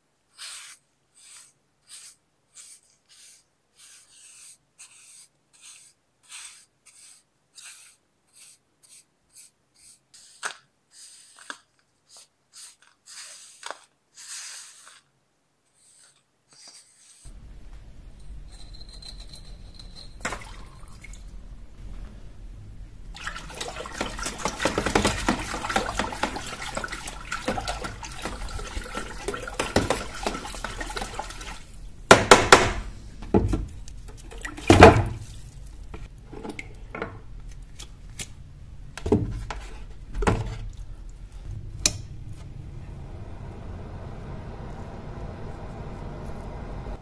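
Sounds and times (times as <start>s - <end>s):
water running from a tap: 23.1s - 31.8s
loud sharp knocks: 32.1s - 32.9s.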